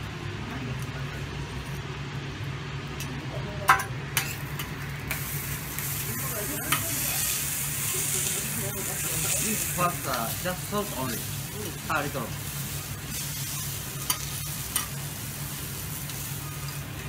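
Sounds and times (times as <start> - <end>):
beef sizzling on griddle: 4.0 - 17.0.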